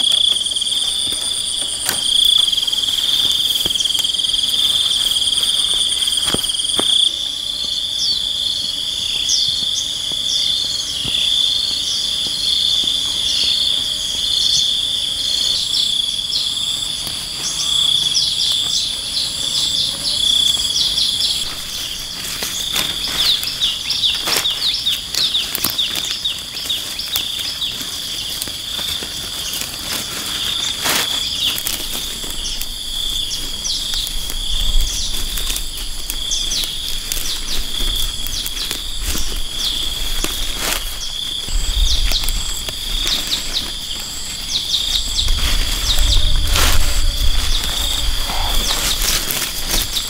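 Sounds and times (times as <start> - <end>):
insect chorus chirping: 0.0 - 50.0
low rumbles: 34.2 - 50.0.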